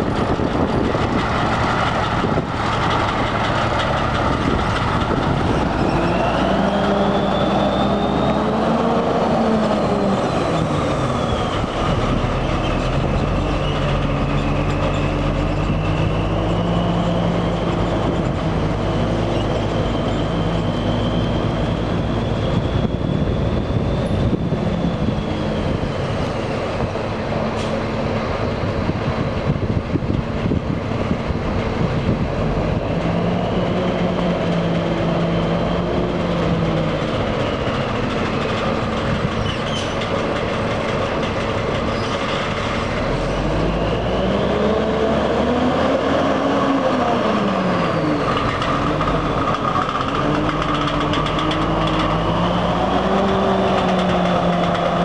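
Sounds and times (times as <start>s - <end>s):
diesel truck engine pulling away: 0.0s - 55.0s.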